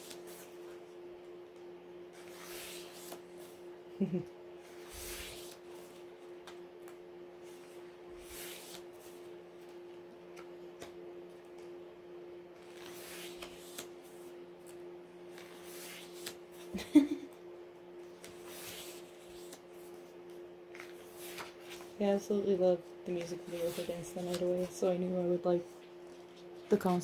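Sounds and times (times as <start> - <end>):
low hum: 0.0 - 27.0
pages turning: 2.2 - 3.2, 4.8 - 7.0, 7.6 - 9.3, 12.6 - 16.4, 18.2 - 20.0, 20.7 - 22.0, 23.4 - 24.8.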